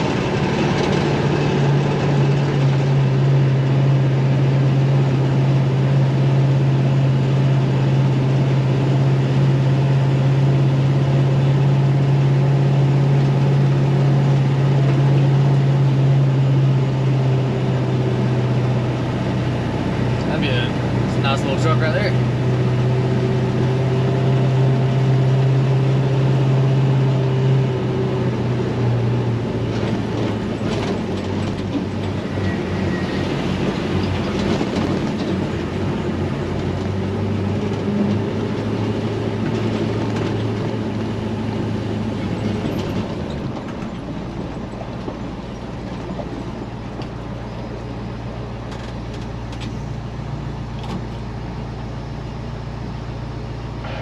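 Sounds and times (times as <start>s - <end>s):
diesel truck engine running: 0.0s - 54.0s
road rumble: 0.0s - 54.0s.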